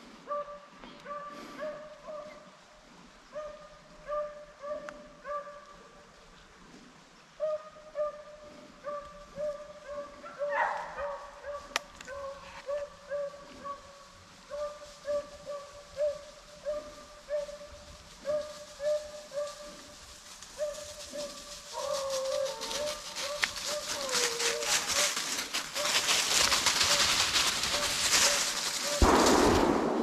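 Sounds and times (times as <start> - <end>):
hounds baying: 3.3 - 6.0, 7.4 - 29.1
dry leaves crunching: 10.4 - 29.8.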